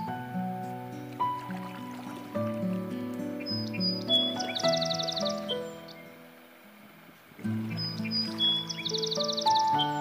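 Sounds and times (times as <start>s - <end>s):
instrumental music with held notes: 7.4s - 10.0s.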